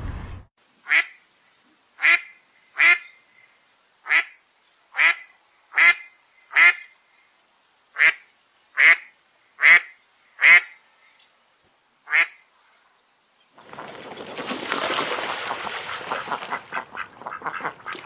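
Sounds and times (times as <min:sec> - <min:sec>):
duck quacking: 0:00.8 - 0:01.2, 0:02.0 - 0:03.1, 0:04.0 - 0:04.4, 0:05.0 - 0:06.9, 0:08.0 - 0:08.2, 0:08.8 - 0:10.8, 0:12.1 - 0:12.4, 0:15.9 - 0:18.0.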